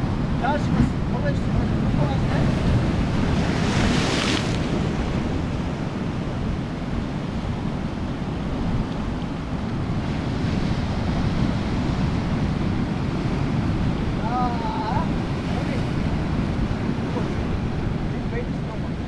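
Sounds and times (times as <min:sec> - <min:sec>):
wave crashing and spraying: 0:00.0 - 0:19.0
wind buffeting microphone: 0:00.0 - 0:19.0
surf breaking on rocks: 0:00.2 - 0:06.2.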